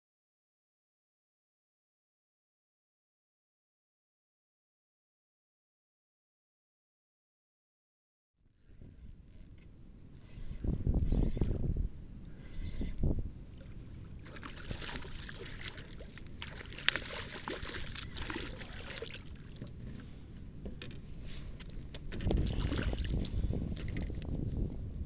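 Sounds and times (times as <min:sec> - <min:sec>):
fish thrashing and splashing water: 0:14.2 - 0:19.7, 0:22.2 - 0:23.3.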